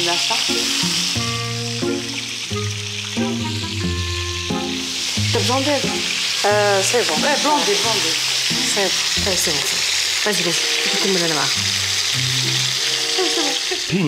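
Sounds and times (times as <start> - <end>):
sliding wavering melody: 0.8 - 13.8.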